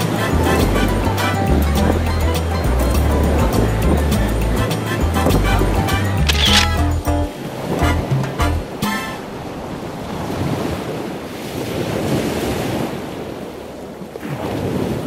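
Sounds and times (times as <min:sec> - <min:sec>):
ocean waves washing in: 0:07.3 - 0:15.0.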